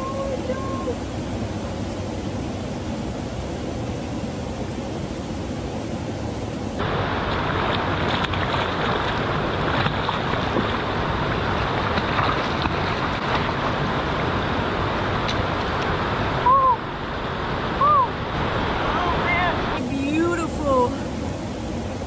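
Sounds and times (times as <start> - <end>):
river water rushing over rocks: 6.8 - 20.9
light water splashes: 7.2 - 13.8.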